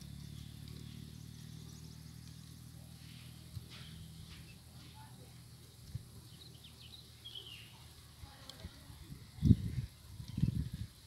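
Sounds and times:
low steady hum: 0.0s - 11.0s
high bird chirps: 6.2s - 7.9s.

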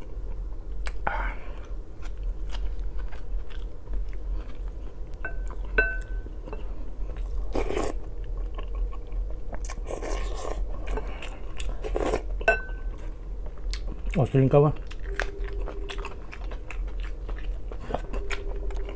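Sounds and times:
chewing and slurping: 1.9s - 14.2s, 14.8s - 18.9s
high ringing pings: 15.0s - 16.2s.

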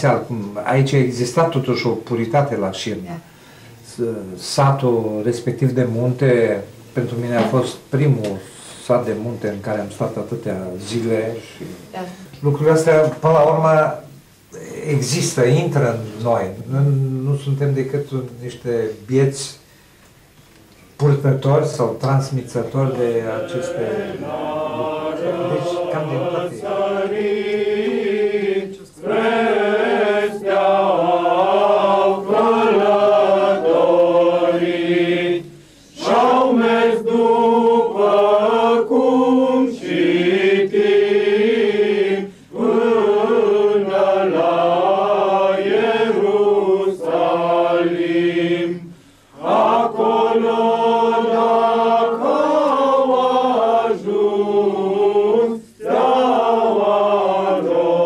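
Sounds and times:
group singing slow chant: 22.6s - 58.0s.

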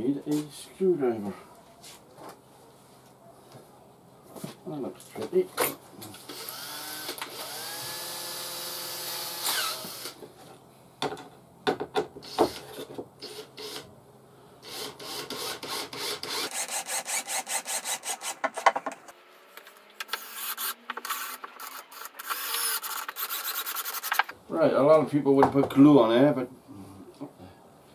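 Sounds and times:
drill motor whining: 6.2s - 10.2s, 19.6s - 23.8s.

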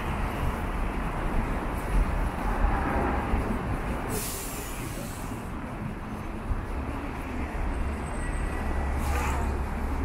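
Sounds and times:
rumble of passing cars: 0.0s - 10.0s
burst of hiss: 4.1s - 5.4s.

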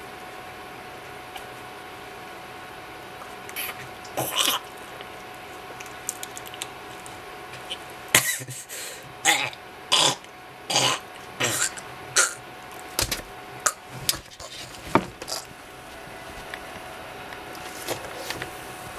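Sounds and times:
man coughing breathily: 8.2s - 8.8s.

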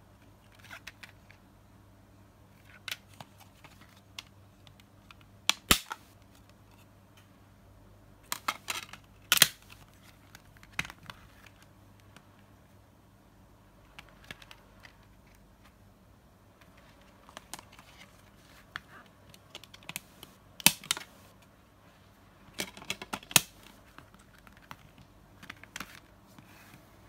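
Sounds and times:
plastic cases clicking and tapping: 22.5s - 26.1s.

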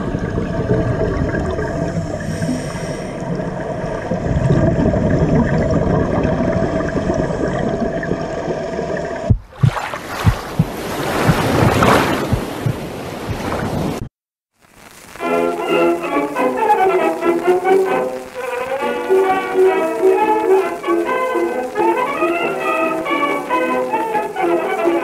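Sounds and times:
muffled underwater rumble: 0.0s - 14.1s
seawater splashing: 0.0s - 14.1s
water thumping on camera: 9.2s - 14.1s.

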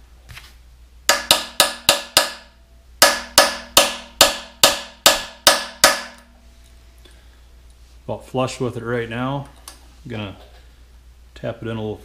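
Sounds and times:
hammer tapping metal punch: 1.1s - 6.3s.

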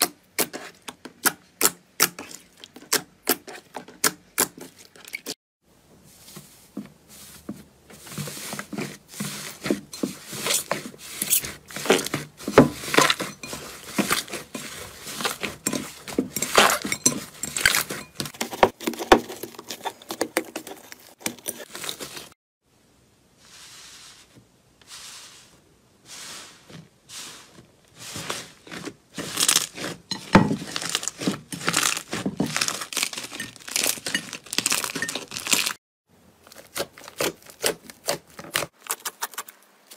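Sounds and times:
hands squishing slime: 28.0s - 35.8s
slime crackling and popping: 30.6s - 35.8s.

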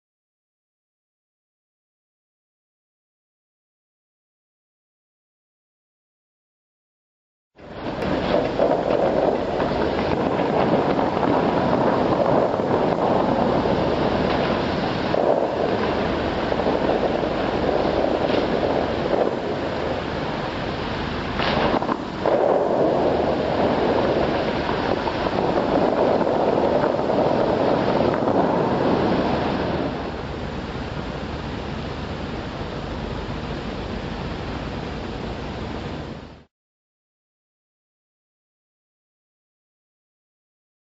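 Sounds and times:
fountain water spray rushing: 7.6s - 36.5s.

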